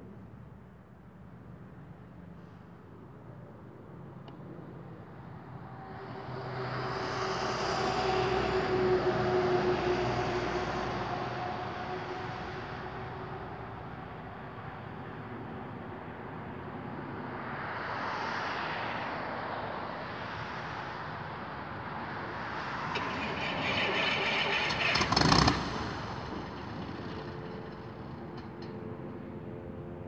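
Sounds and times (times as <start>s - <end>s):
aircraft engine starting: 22.3s - 28.8s.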